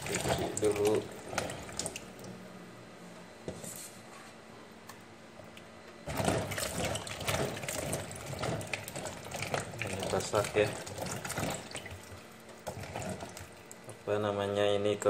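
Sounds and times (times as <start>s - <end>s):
tap water running into sink: 0.0s - 2.4s, 6.1s - 14.0s
water splashing: 0.0s - 2.4s, 6.1s - 14.0s.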